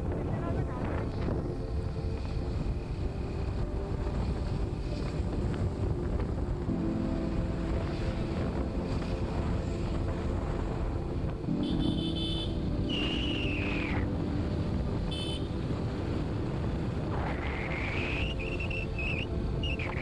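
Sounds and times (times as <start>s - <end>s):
road traffic rumble: 0.0s - 20.0s
wind: 0.0s - 20.0s
vehicle horns honking: 11.6s - 12.7s, 15.0s - 15.6s
whistle-like tone: 12.9s - 13.8s, 17.9s - 20.0s.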